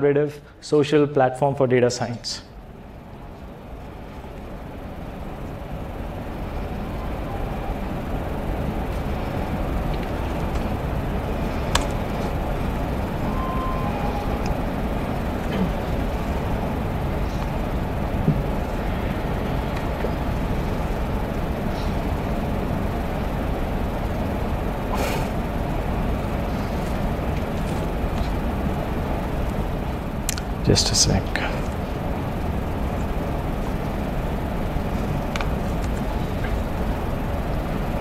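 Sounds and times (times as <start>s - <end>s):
low room rumble with hiss: 0.0s - 38.0s.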